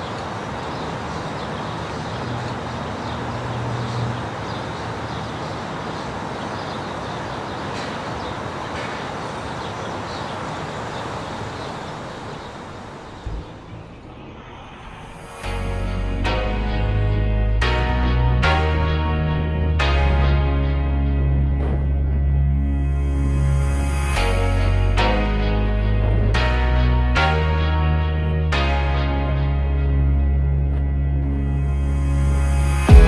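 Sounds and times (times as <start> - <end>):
car tyre and engine noise: 0.0 - 15.6
music: 15.2 - 33.0
low thump: 21.6 - 22.2.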